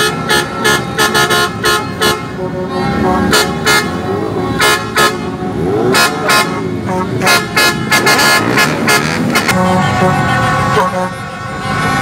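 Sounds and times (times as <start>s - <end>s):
motorbikes running: 0.0s - 12.0s
truck running: 0.0s - 12.0s
crowd shouting and cheering: 9.0s - 12.0s.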